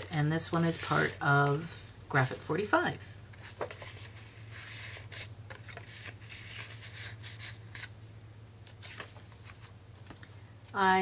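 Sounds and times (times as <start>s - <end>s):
paper rustling and sliding: 3.3s - 7.9s, 8.7s - 9.7s.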